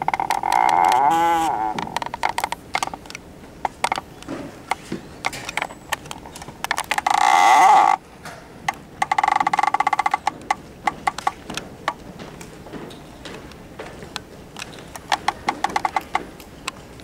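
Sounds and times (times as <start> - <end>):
footsteps on wooden floor: 10.9 - 14.8.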